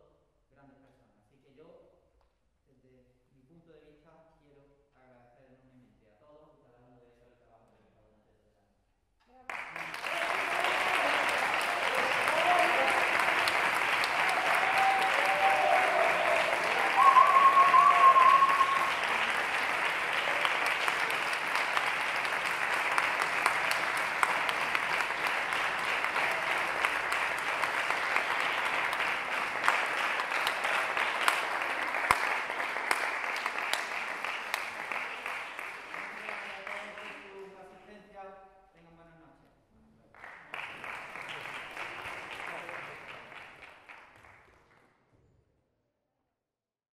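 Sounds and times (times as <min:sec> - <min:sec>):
audience applauding: 0:09.5 - 0:37.5, 0:40.2 - 0:44.8
long high held call: 0:10.2 - 0:21.0.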